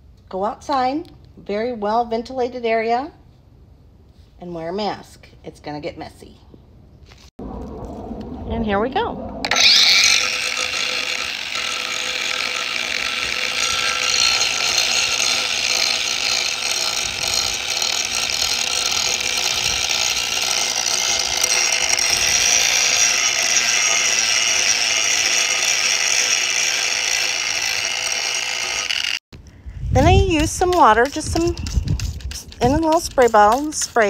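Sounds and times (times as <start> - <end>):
angle grinder whining: 9.4 - 29.2.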